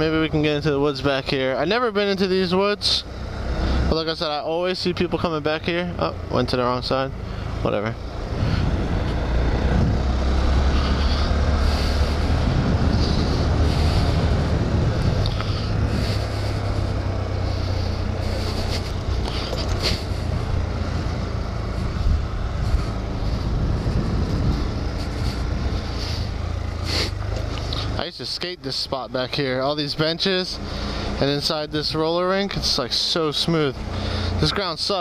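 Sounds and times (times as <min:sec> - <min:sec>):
motorcycle engine running: 0:00.0 - 0:35.0
wind noise on microphone: 0:08.3 - 0:16.9, 0:21.7 - 0:26.4.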